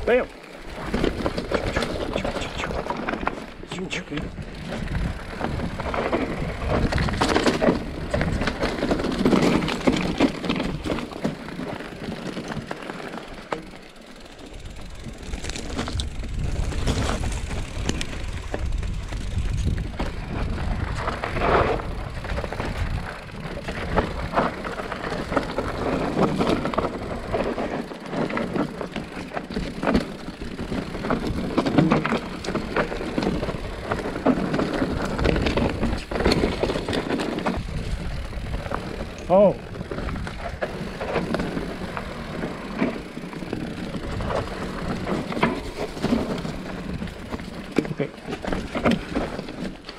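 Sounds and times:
bike rattling and clacking: 0.0 - 49.9
tyres crunching over ground: 0.0 - 49.9
wind rumbling on microphone: 0.6 - 12.7, 14.5 - 47.6.

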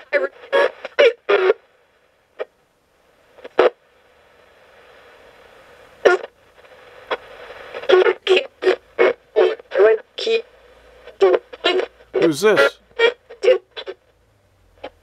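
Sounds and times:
low radio hiss: 0.0 - 15.0
chopped radio voice fragments: 12.2 - 12.8.

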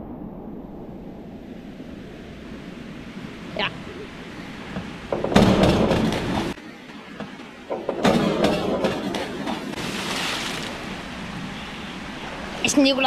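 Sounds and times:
churning water: 2.3 - 13.0
diver splashing into pool: 9.7 - 11.1.

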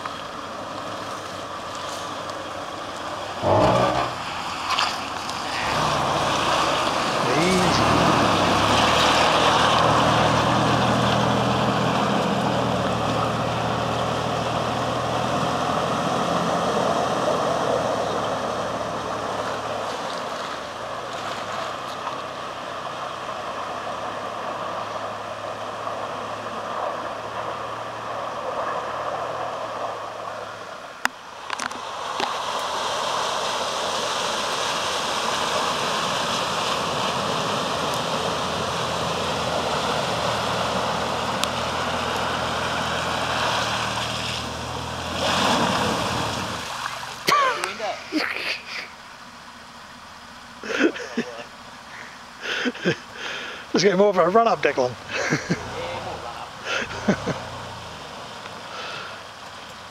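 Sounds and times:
car engine running: 0.0 - 30.6, 35.2 - 59.9
river water rushing: 0.0 - 54.3, 55.0 - 59.9
water splashing: 0.3 - 28.8, 31.4 - 48.3.

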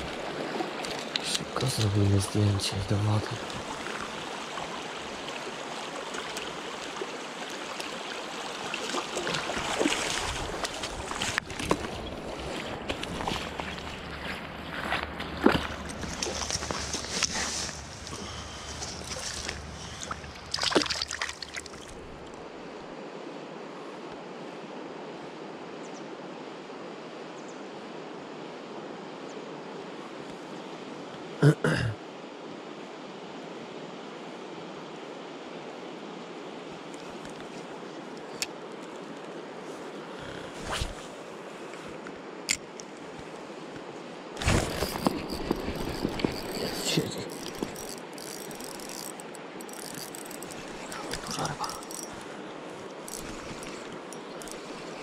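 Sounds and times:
river water flowing: 0.0 - 55.0
water splashing: 3.1 - 14.3, 15.4 - 22.4
fishing reel rattle: 44.7 - 52.2, 53.0 - 54.7
fishing reel clicking: 44.8 - 52.2, 53.0 - 54.7.

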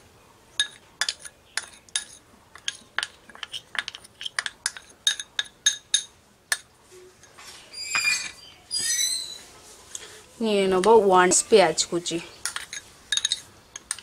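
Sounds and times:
metal spoon clinking on bowls: 0.6 - 8.4, 10.8 - 14.0.

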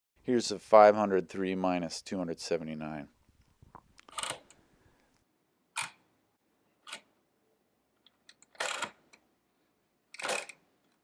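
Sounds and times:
adding machine dial wheels clicking: 4.0 - 4.6, 8.3 - 9.0, 10.2 - 10.6.

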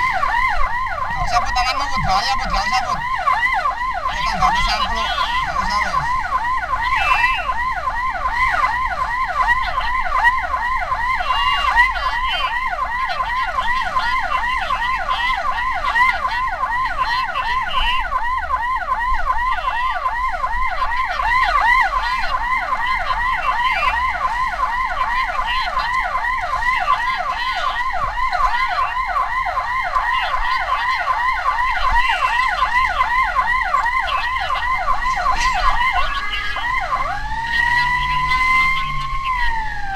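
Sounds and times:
siren yelping: 0.0 - 39.9.

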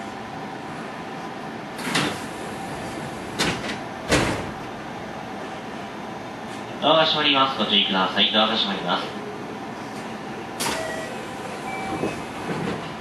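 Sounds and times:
steady background hum: 0.0 - 13.0
train doors opening: 1.7 - 4.9, 9.8 - 13.0.

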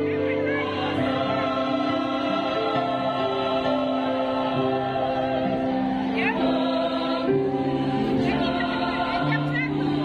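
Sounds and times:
choir singing in harmony: 0.0 - 10.0.

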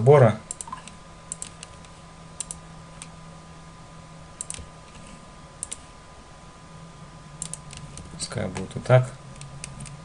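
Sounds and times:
faint electrical hum: 0.0 - 10.0
mouse and keyboard clicks: 0.5 - 3.1, 4.4 - 5.8, 7.4 - 8.7.

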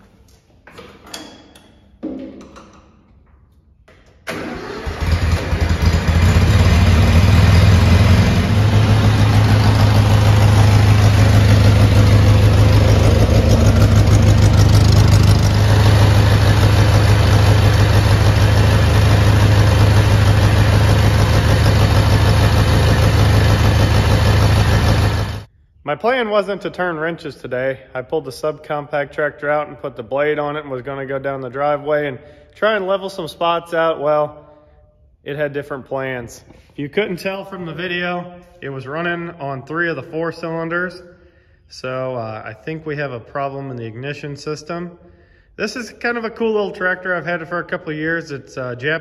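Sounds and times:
tractor engine starting and running: 3.9 - 25.5.

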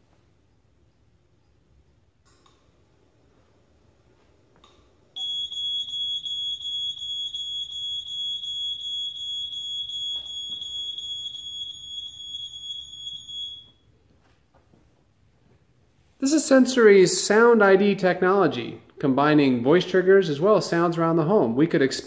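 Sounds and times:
smoke alarm tone: 5.2 - 14.0.

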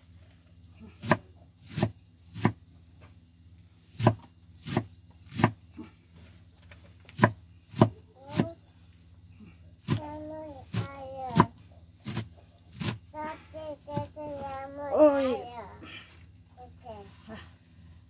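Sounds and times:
knife chopping on cutting board: 1.0 - 2.6, 4.0 - 5.6, 7.2 - 8.4, 10.7 - 13.0.

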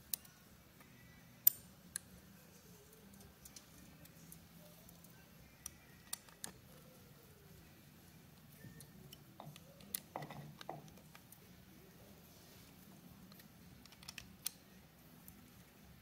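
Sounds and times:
faint steady hum: 0.0 - 16.0
hex key metallic clicks: 13.3 - 14.6.

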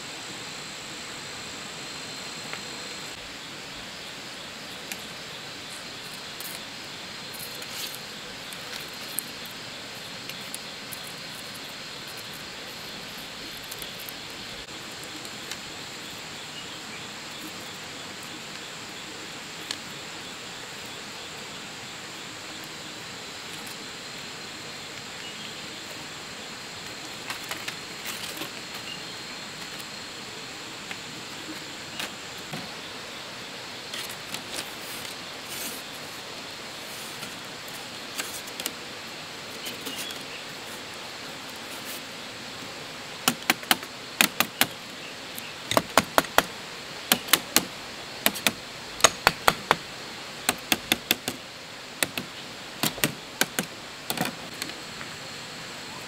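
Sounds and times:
jungle insects hissing: 0.0 - 56.0
bamboo strips clicking and rustling: 6.0 - 15.9, 26.8 - 28.9, 30.8 - 32.8, 33.9 - 36.1, 37.1 - 38.9, 42.6 - 51.4, 52.0 - 55.1
machete tapping bamboo: 47.1 - 49.8.

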